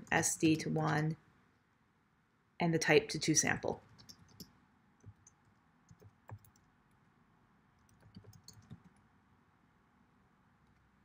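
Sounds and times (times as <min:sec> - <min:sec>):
faint keyboard typing: 0:03.8 - 0:07.1, 0:07.8 - 0:09.1, 0:10.6 - 0:11.0.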